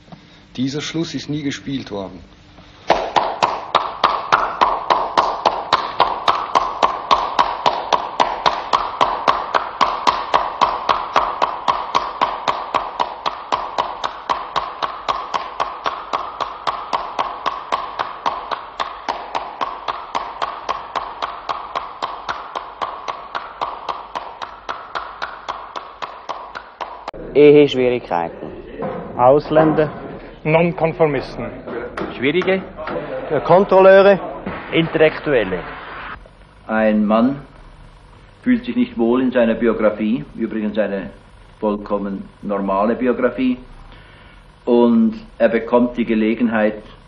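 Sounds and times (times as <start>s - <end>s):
person clapping hands: 2.9s - 27.2s.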